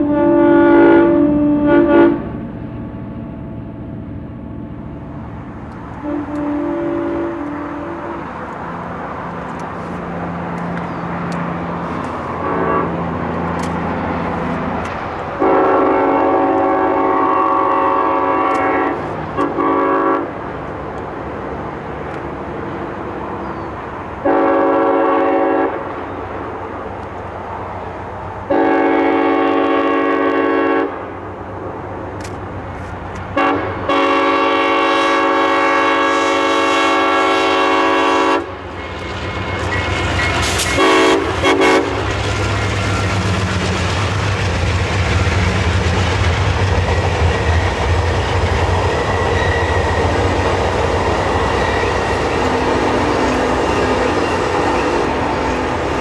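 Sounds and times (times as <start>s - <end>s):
locomotive air horn blasts: 0.0s - 2.4s, 6.0s - 8.4s, 12.3s - 13.1s, 15.4s - 20.4s, 24.2s - 25.8s, 28.5s - 31.0s, 33.4s - 42.1s
low rumble of train: 0.0s - 56.0s.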